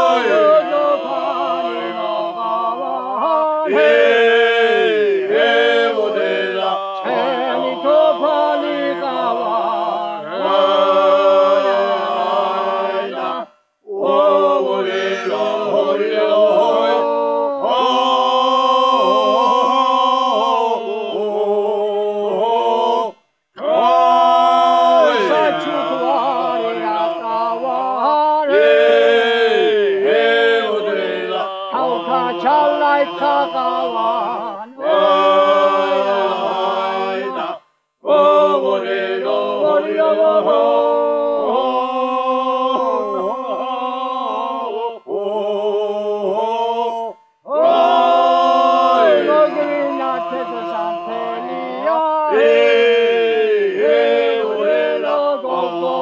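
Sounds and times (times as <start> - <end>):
men singing in harmony: 0.0 - 56.0.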